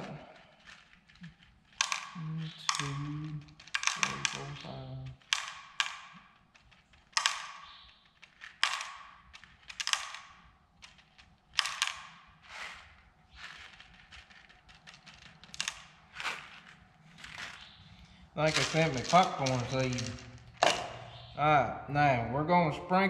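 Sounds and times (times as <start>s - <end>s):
seeds clicking into plastic cup: 0.0s - 21.3s.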